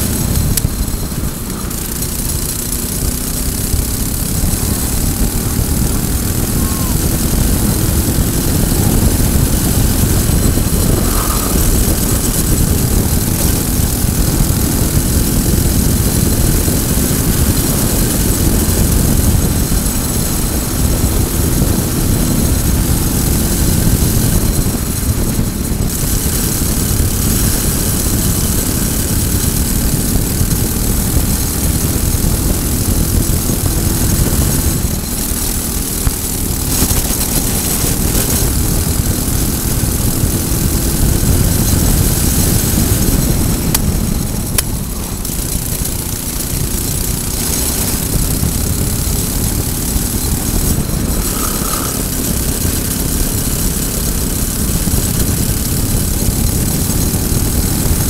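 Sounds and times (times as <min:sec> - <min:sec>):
kart engine running: 0:00.0 - 0:58.0
wind noise on microphone: 0:00.0 - 0:58.0.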